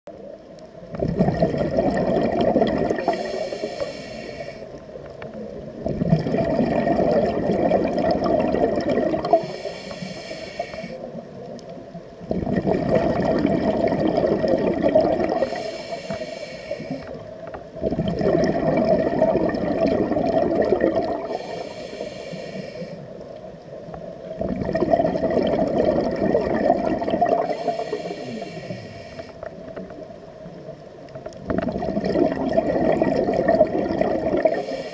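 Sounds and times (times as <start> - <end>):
rush of exhaled bubbles: 0.9 - 11.2, 12.2 - 16.2, 16.8 - 23.2, 24.3 - 30.1, 31.4 - 34.9
regulator hiss on inhale: 3.0 - 5.4, 9.2 - 11.3, 15.3 - 17.6, 21.2 - 23.5, 27.4 - 29.9, 34.4 - 34.9.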